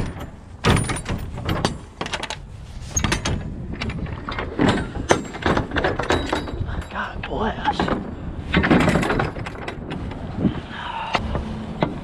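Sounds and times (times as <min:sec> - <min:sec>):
metal doors knocking and clunking: 0:00.0 - 0:02.3, 0:03.0 - 0:06.9, 0:07.7 - 0:10.0.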